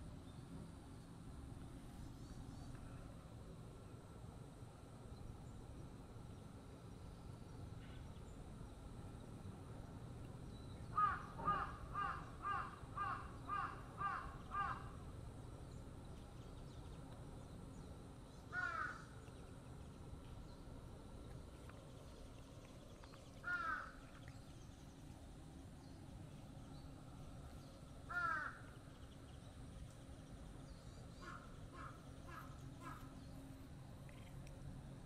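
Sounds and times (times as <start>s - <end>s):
crow cawing: 10.9s - 14.9s, 18.5s - 19.1s, 23.4s - 24.0s, 28.1s - 28.6s, 31.2s - 33.1s.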